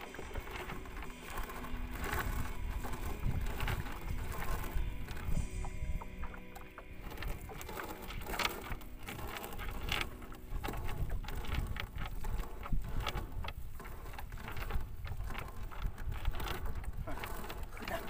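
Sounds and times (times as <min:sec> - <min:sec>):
net rustling and clicking: 0:00.0 - 0:18.0
wind on microphone: 0:00.0 - 0:18.0.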